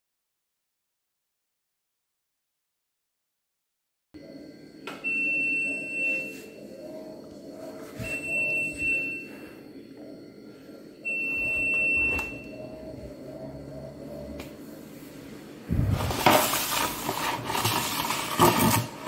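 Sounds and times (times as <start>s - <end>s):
washing machine high beeps: 4.2s - 9.7s, 10.4s - 14.0s
low hum: 4.2s - 19.0s.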